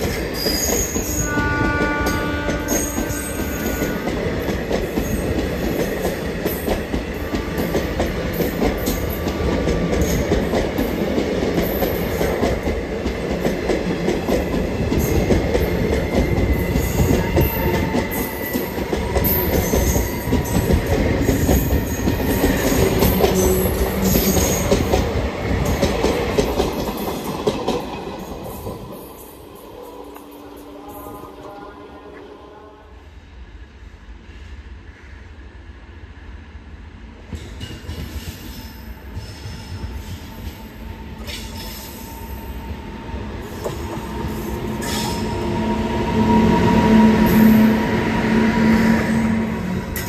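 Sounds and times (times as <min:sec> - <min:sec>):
train rumble: 0:00.0 - 0:33.2.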